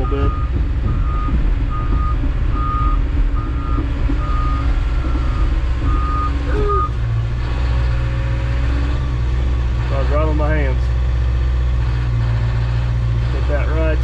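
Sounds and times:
reversing alarm beeping: 0.0s - 7.0s
diesel engine running: 0.0s - 14.0s.

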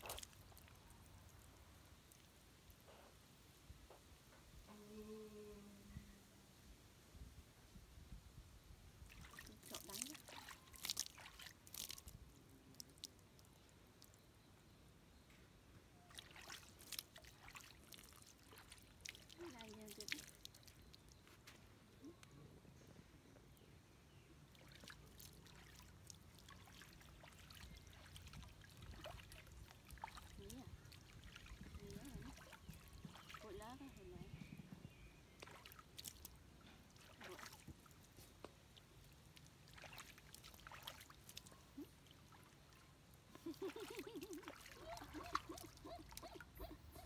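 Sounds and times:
small drips: 0.0s - 2.9s, 9.0s - 14.2s, 16.1s - 22.3s, 24.5s - 34.1s, 35.3s - 46.6s
water trickling and splashing: 0.0s - 2.9s, 9.0s - 14.2s, 16.0s - 21.7s, 24.4s - 47.0s.

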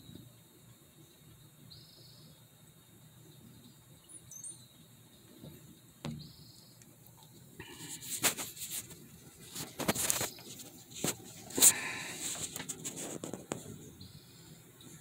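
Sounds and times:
faint high-pitched whine: 0.0s - 15.0s
camera handling rustles and knocks: 7.9s - 13.7s.

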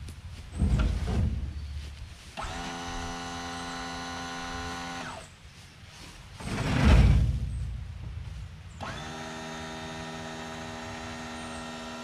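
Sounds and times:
hydraulic pump motor humming: 2.4s - 5.2s, 8.8s - 12.0s
loud rumbling thump: 6.4s - 8.5s.

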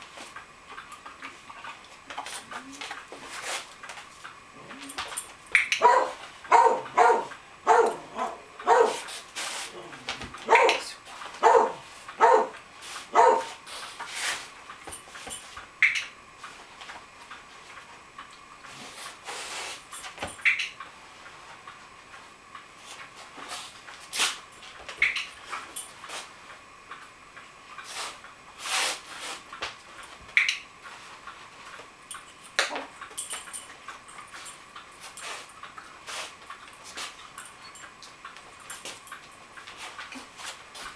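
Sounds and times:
dog barking: 5.8s - 9.0s, 10.4s - 13.6s.

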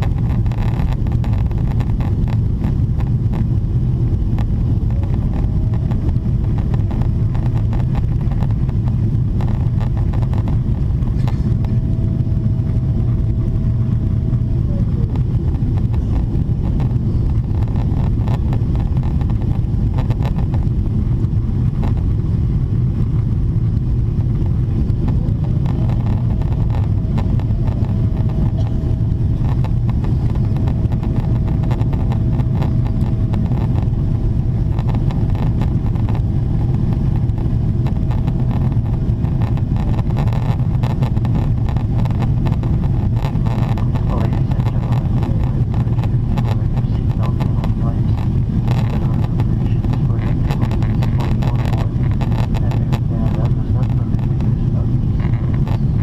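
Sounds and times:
airplane cabin roar: 0.0s - 56.0s
faint steady whine: 0.0s - 56.0s.

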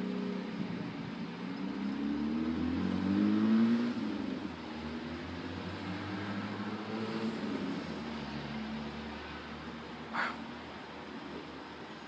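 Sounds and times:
car engine accelerating: 0.0s - 9.6s.

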